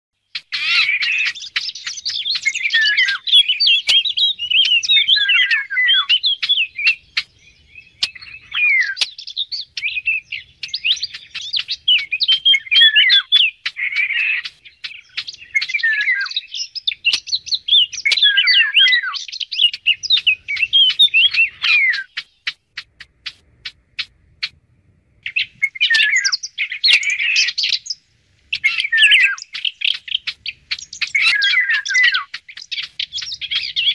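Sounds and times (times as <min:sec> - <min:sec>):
songbird warbling: 0:00.2 - 0:24.6, 0:25.2 - 0:33.9
sharp clicks: 0:00.4 - 0:04.8, 0:10.6 - 0:15.9, 0:16.8 - 0:18.5, 0:19.5 - 0:24.6.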